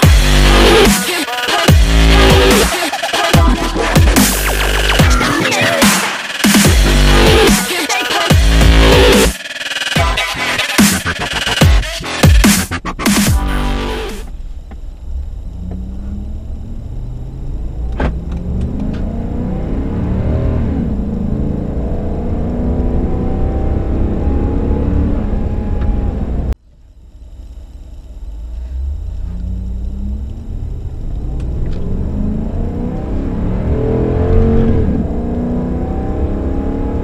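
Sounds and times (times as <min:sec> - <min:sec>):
truck engine accelerating: 0:00.0 - 0:37.0.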